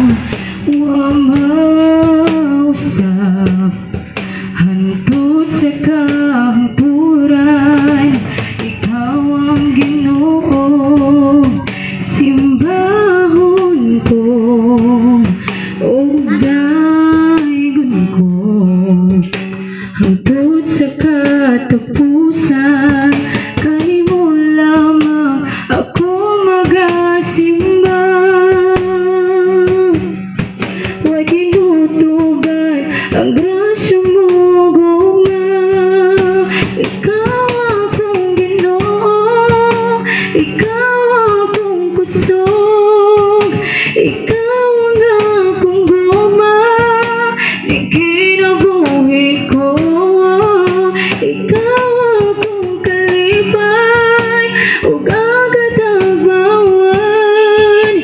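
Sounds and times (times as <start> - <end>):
nylon-string acoustic guitar: 0.0 - 58.0
woman singing worship song: 0.0 - 58.0.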